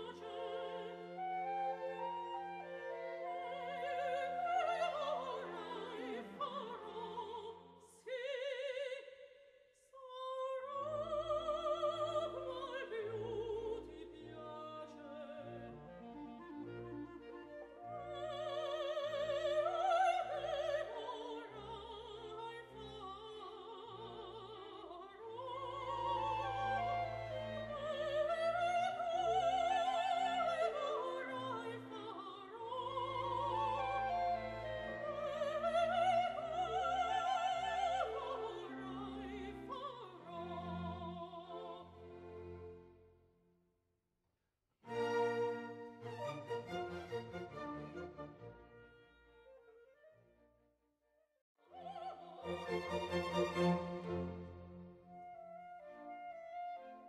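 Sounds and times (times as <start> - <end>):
operatic singing voice: 0.0 - 1.7, 3.2 - 16.2, 17.9 - 42.5, 51.6 - 54.4
orchestral accompaniment: 44.9 - 49.4, 52.5 - 55.4.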